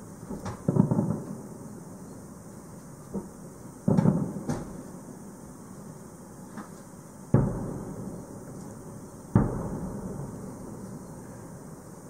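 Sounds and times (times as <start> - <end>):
firework booms echoing: 0.0 - 1.6, 3.1 - 5.0, 7.3 - 11.8.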